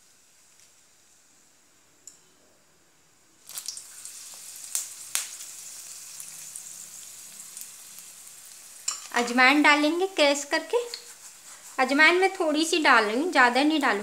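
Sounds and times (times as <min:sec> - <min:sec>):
chillies sizzling in hot oil: 0:00.0 - 0:02.2, 0:03.1 - 0:14.0
oil crackling: 0:03.4 - 0:09.9.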